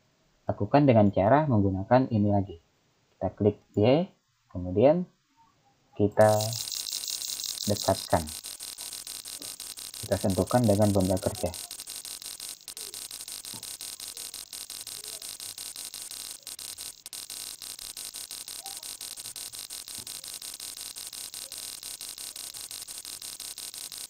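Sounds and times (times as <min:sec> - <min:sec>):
handwheel clicking: 0:06.2 - 0:24.0.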